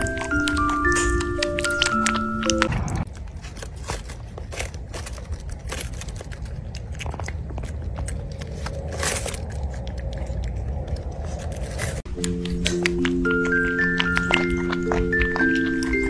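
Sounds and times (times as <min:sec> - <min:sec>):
light mallet percussion music: 0:00.0 - 0:02.7, 0:12.1 - 0:16.0
puppy crunching cabbage leaf: 0:00.0 - 0:16.0.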